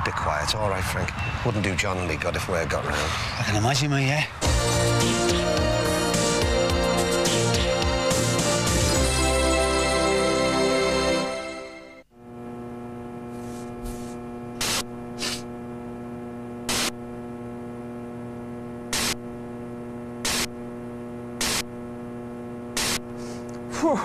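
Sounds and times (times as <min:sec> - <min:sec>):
theme music: 0:04.4 - 0:12.0
electrical mains hum: 0:12.0 - 0:24.0
static crackle bursts: 0:12.2 - 0:23.4.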